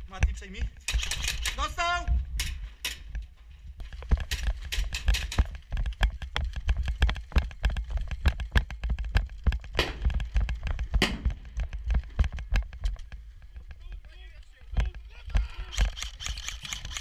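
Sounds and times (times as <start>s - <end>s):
footsteps on hard ground: 2.0s - 15.5s
gear clatter: 15.5s - 17.0s.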